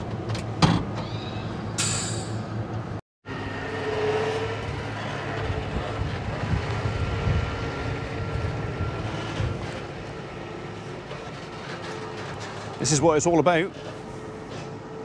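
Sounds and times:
trailer wheels rolling on gravel: 4.0s - 14.7s.

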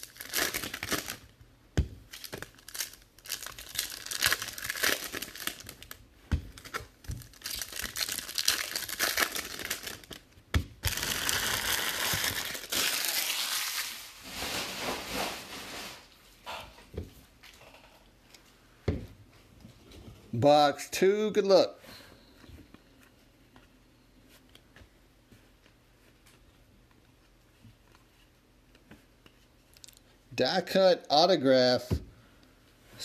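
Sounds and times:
foil wrappers crinkling and tearing: 0.0s - 1.3s, 2.1s - 10.2s, 10.8s - 16.1s.

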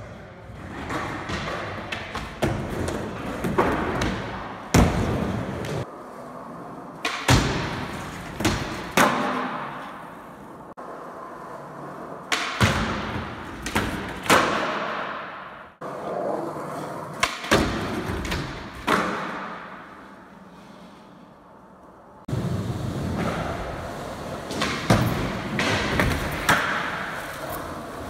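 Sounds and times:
skateboard wheels rolling on concrete: 0.0s - 28.0s
skateboard landings: 22.3s - 28.0s.

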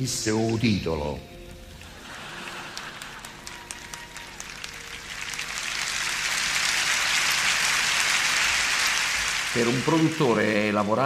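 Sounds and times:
stadium crowd applauding: 1.8s - 11.0s.

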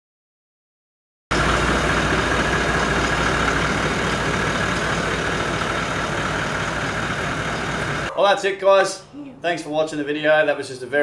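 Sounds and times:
diesel engine running: 1.3s - 8.1s.

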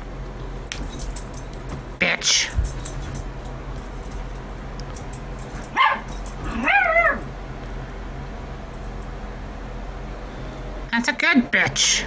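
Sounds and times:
pet animal crying: 5.8s - 7.3s.

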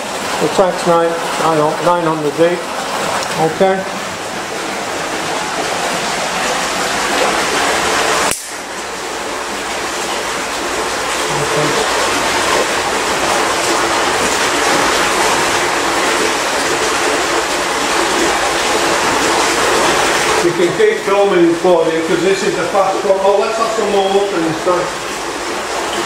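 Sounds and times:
water gushing from hose: 0.0s - 26.0s.

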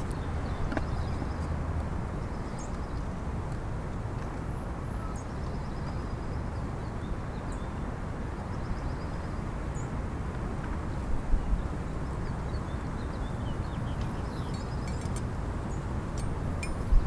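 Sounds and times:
wind buffeting microphone: 5.3s - 17.0s
small birds chirping: 11.4s - 17.0s.

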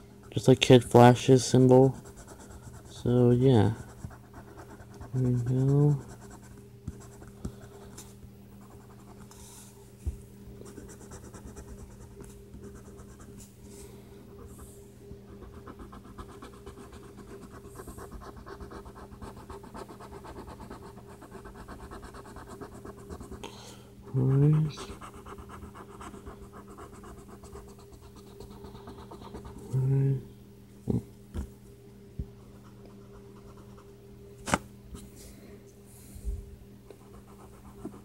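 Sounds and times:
steady low hum: 0.0s - 38.0s
crayon scratching on paper: 1.9s - 3.0s, 3.7s - 7.2s, 10.7s - 13.3s, 15.4s - 23.4s, 24.3s - 29.7s, 37.0s - 38.0s.

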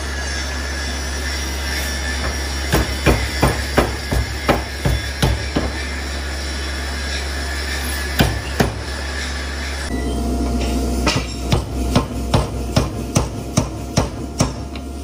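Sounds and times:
steady low hum: 0.0s - 15.0s
steam hammer striking steel: 2.2s - 6.0s, 8.1s - 9.0s, 10.6s - 14.8s.

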